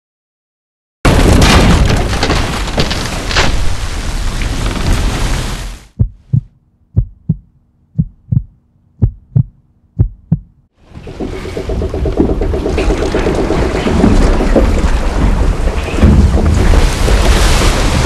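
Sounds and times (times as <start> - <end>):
heartbeat thumps: 5.9 - 12.8.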